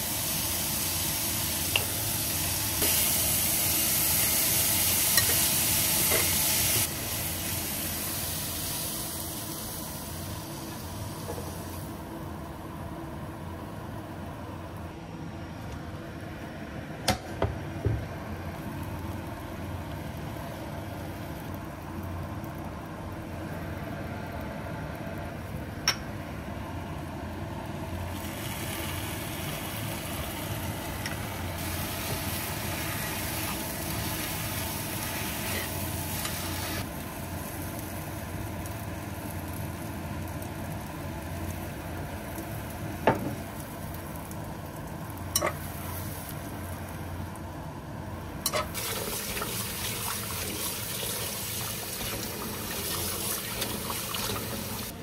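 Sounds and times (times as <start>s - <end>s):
food frying in a skillet: 0.0s - 12.1s, 18.3s - 55.0s
sauce sizzling: 0.0s - 12.1s, 27.2s - 47.4s, 48.5s - 55.0s.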